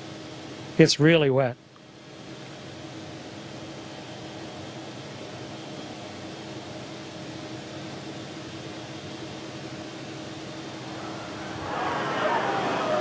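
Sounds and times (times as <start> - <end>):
ventilation fans humming: 0.0 - 13.0
faint steady tones: 3.2 - 13.0.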